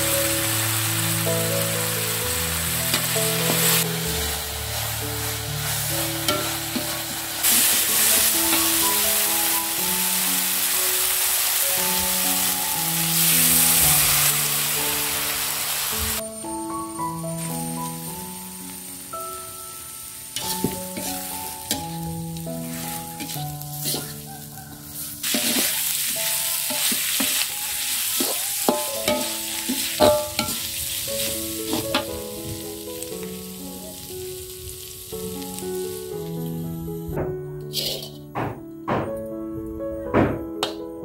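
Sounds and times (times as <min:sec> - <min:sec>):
food sizzling in a wok: 0:00.0 - 0:37.1, 0:37.7 - 0:38.2
gentle background music: 0:00.0 - 0:41.0
spatula scraping a pan: 0:02.9 - 0:09.0, 0:20.4 - 0:22.0, 0:22.6 - 0:32.1, 0:37.7 - 0:38.3
spatula clinking on pan: 0:23.2 - 0:24.1, 0:25.2 - 0:27.5, 0:28.2 - 0:30.7.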